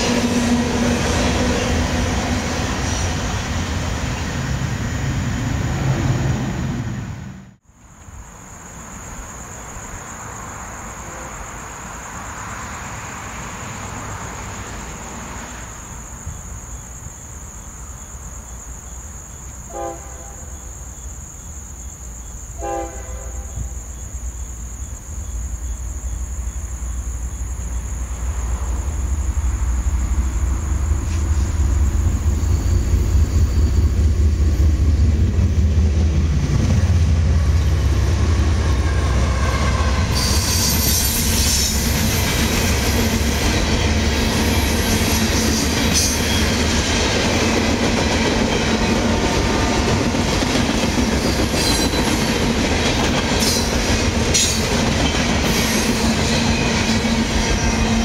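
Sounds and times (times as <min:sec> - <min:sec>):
locomotive horn blasts: 0:19.7 - 0:20.5, 0:22.6 - 0:23.7, 0:38.7 - 0:41.0.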